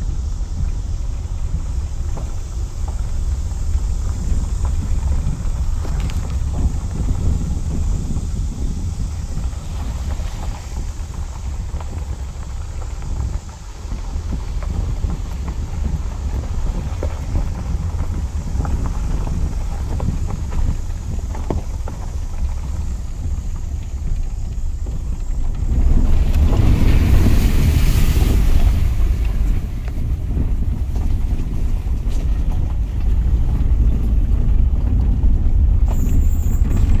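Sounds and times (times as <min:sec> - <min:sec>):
vehicle driving on gravel: 0:00.0 - 0:37.0
wind buffeting microphone: 0:00.0 - 0:37.0
water splashing: 0:25.7 - 0:31.8.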